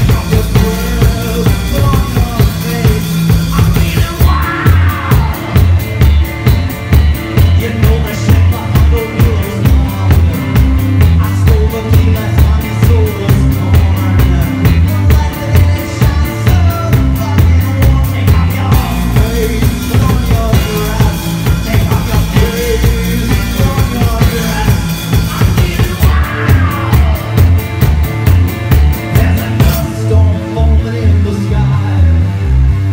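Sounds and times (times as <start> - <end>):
man singing: 0.0 - 27.9, 28.9 - 32.4
drum kit: 0.0 - 31.7.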